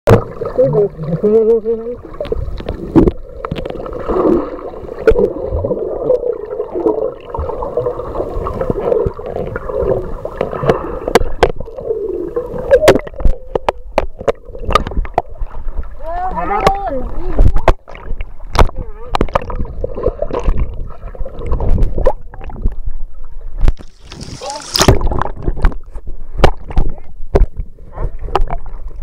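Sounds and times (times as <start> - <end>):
sharp underwater clicks and pops: 2.2 - 3.8, 10.4 - 11.8, 12.6 - 15.5, 16.5 - 22.8, 23.6 - 27.7, 28.3 - 28.7.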